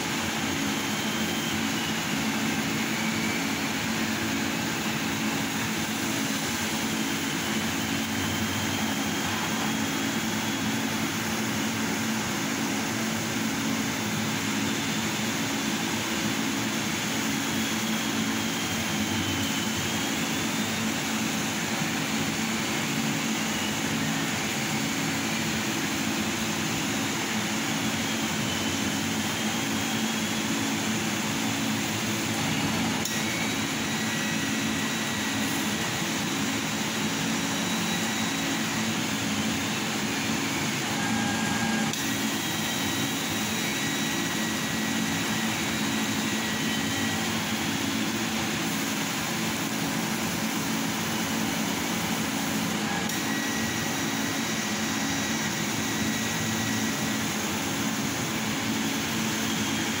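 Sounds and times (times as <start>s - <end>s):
laser cutter hum and hiss: 0.0s - 60.0s
thin high whines: 15.9s - 60.0s.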